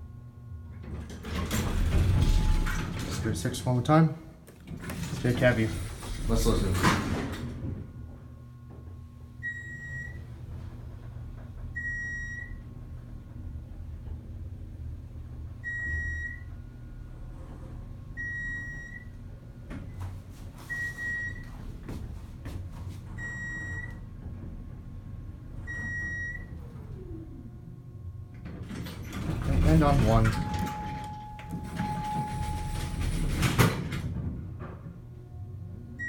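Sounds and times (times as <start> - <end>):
elevator hum: 0.0 - 36.0
electronic floor beep: 9.4 - 10.2, 20.7 - 21.5, 23.2 - 24.0, 30.3 - 33.0.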